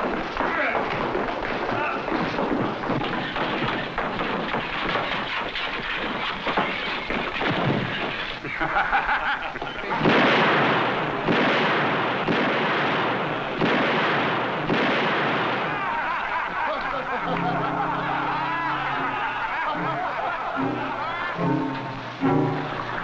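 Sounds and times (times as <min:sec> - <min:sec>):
loud noisy commotion: 0:00.0 - 0:09.1, 0:09.8 - 0:23.0
sustained music chords: 0:19.8 - 0:23.0.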